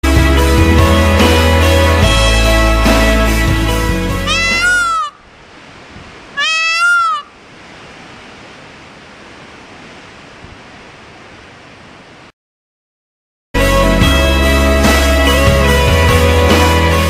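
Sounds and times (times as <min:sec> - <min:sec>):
steady outdoor hiss: 0:00.1 - 0:12.3
peacock calling: 0:04.1 - 0:05.3, 0:06.3 - 0:07.4.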